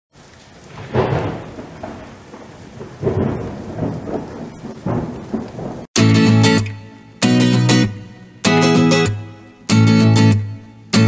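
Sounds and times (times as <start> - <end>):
rain hiss: 0.1 - 11.0
rolling thunder: 0.6 - 5.9
loud guitar music: 6.0 - 11.0.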